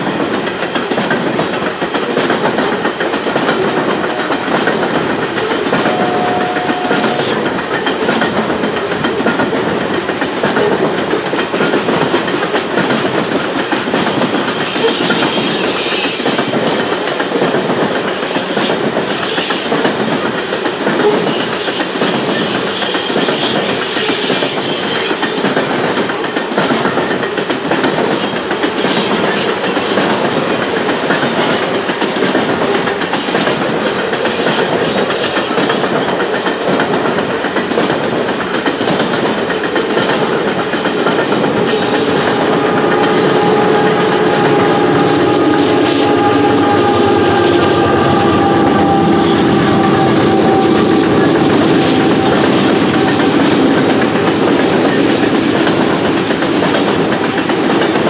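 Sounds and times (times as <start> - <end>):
high-pitched rail noise: 0.0 - 19.9, 39.6 - 58.0
clickety-clack over rail joints: 0.0 - 58.0
freight train wheel rumble: 0.0 - 58.0.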